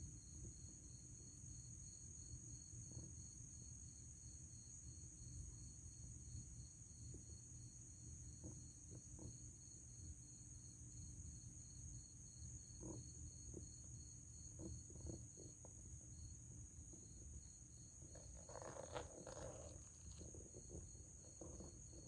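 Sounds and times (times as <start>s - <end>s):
faint soft ticks and rustles: 1.6s - 3.8s, 5.2s - 22.0s
high insect trill: 4.5s - 22.0s.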